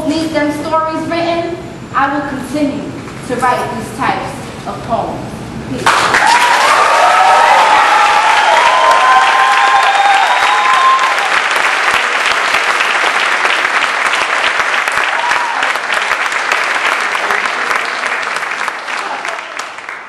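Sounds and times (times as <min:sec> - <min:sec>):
audience applauding: 0:05.8 - 0:20.0
voices cheering: 0:06.1 - 0:11.7, 0:14.9 - 0:16.0.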